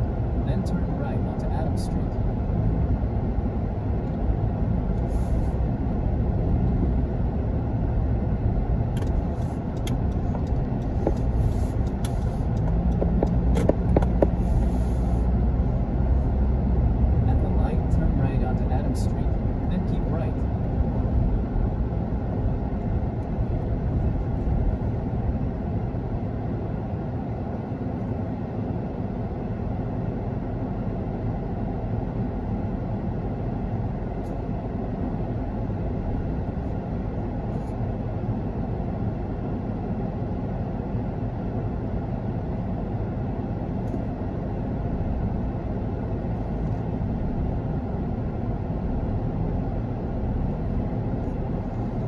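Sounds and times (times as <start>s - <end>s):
car engine rumble in cabin: 0.0s - 52.0s.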